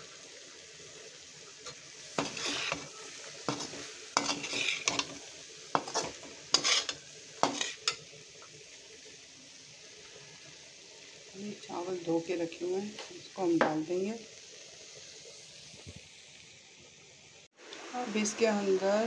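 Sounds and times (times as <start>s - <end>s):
faint sizzle: 0.0s - 19.0s
metal spatula scraping pan: 1.7s - 8.1s.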